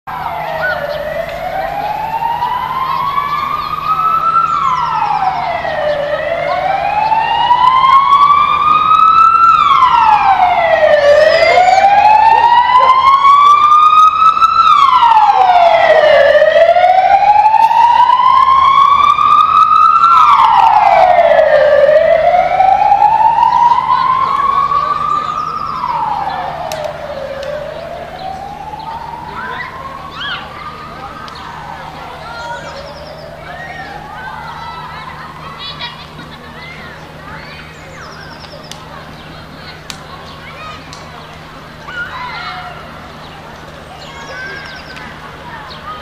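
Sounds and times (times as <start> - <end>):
siren wailing: 0.1 - 36.2.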